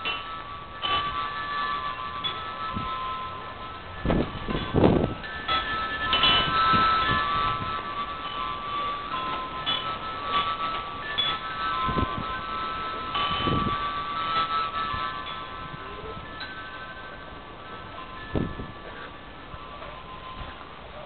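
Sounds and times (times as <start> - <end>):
wind chimes ringing: 0.0 - 21.0.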